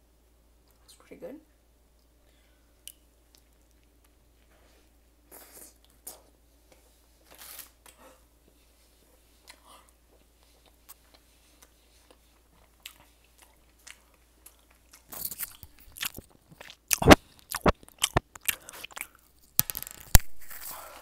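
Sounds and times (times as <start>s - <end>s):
chewing and mouth sounds: 9.4s - 19.4s
crunching bites: 12.9s - 20.8s.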